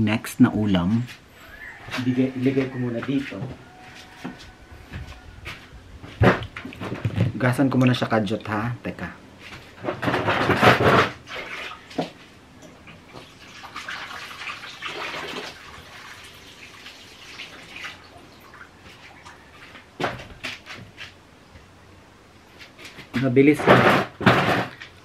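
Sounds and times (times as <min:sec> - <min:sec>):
water splashing in a bowl: 0:11.2 - 0:12.2, 0:12.9 - 0:19.6.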